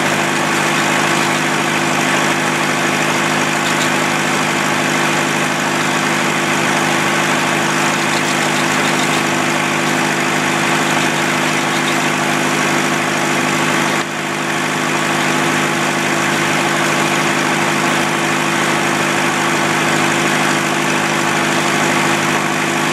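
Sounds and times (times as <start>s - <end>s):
circular saw humming: 0.0s - 12.9s.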